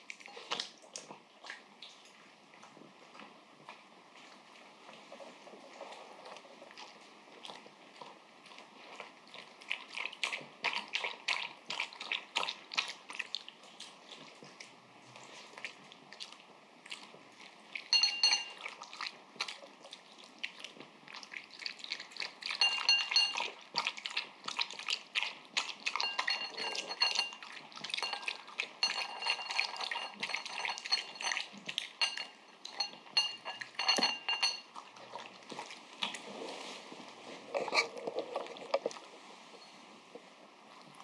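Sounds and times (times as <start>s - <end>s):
dog lapping and chewing: 0.0s - 36.3s
teeth clinking on ceramic bowl: 17.9s - 18.8s, 22.5s - 23.6s, 25.9s - 34.8s.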